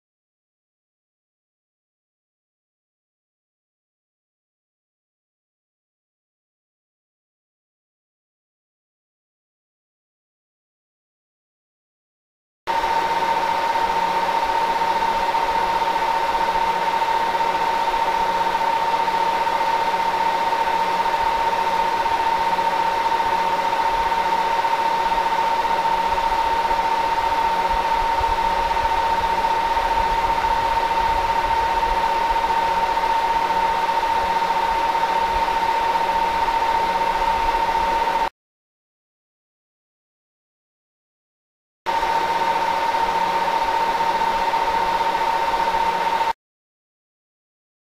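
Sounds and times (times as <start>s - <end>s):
machine drone with hum: 12.7s - 38.3s, 41.9s - 46.4s.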